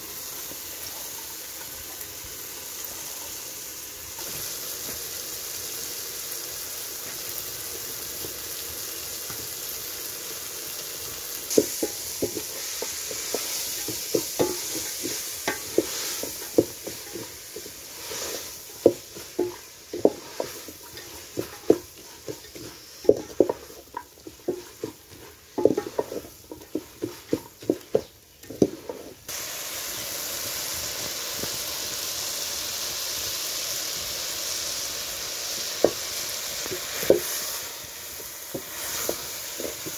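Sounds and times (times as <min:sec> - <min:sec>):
cabbage sizzling in a pot: 0:00.0 - 0:39.9
wooden spoon knocking against pot: 0:11.5 - 0:29.0.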